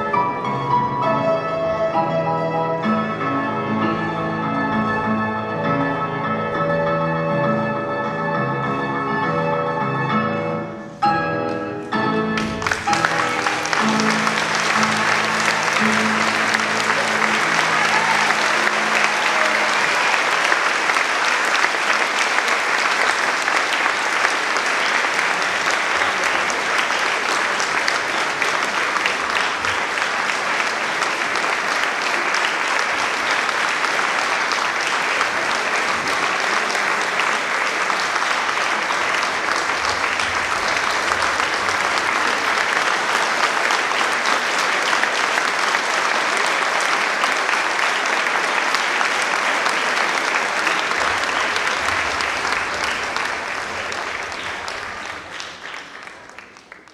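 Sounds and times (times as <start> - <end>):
audience applauding: 12.3 - 56.9.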